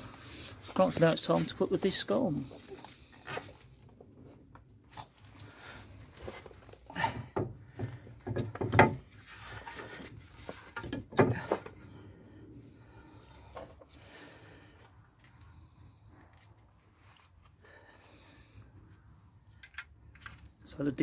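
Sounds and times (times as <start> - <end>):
metal knocks and clunks: 7.1 - 9.1, 10.5 - 11.7.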